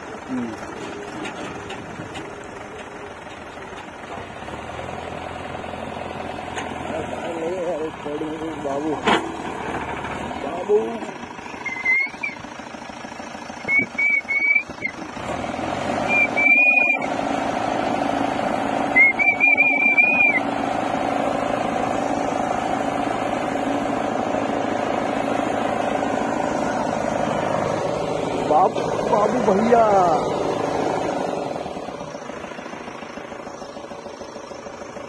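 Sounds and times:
diesel engine running: 0.0s - 35.0s
high wavering whistles: 11.6s - 12.4s, 13.6s - 15.0s, 16.1s - 17.1s, 18.9s - 20.5s.

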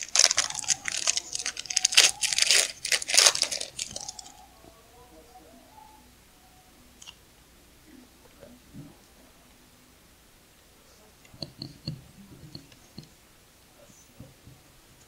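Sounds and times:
foil wrapper crinkling: 0.0s - 4.4s.

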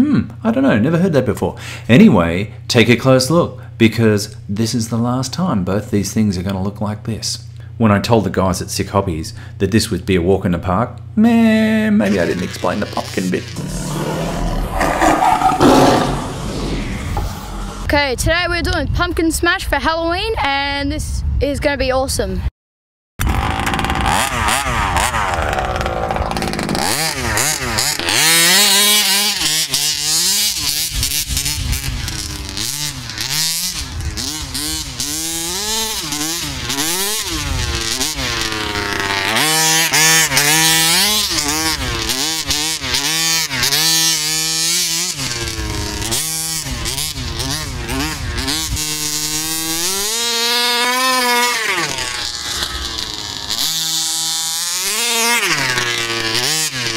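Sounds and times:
two-stroke engine revving: 12.0s - 18.0s, 23.2s - 56.9s.

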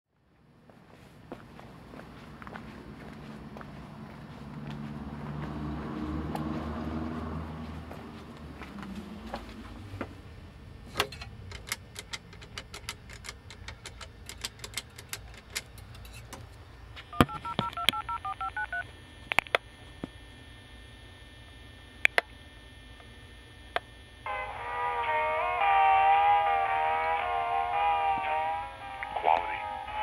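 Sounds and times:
touch-tone beeps: 17.1s - 18.8s.

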